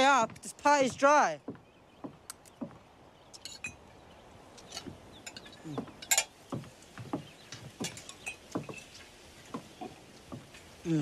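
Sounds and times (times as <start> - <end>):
metal cups and tableware clinking: 3.4 - 3.8, 4.6 - 6.4, 7.8 - 9.0.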